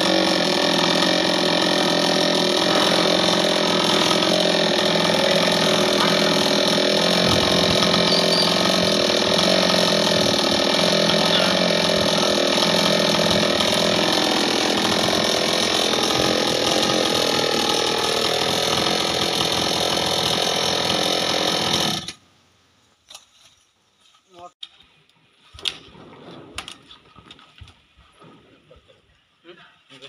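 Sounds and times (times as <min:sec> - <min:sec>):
chainsaw idling: 0:00.0 - 0:22.2.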